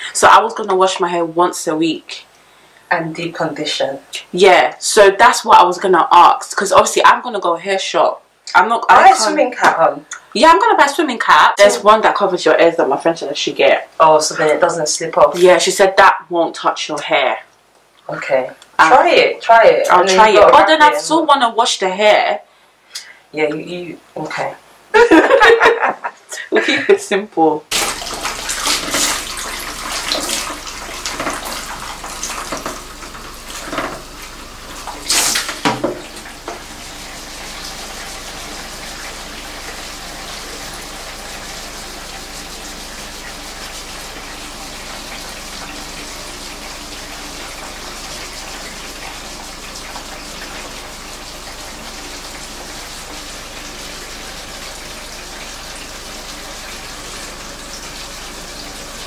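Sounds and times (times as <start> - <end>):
shower sprayer water running: 8.6 - 16.2, 18.2 - 22.3, 23.4 - 26.0, 26.6 - 59.0.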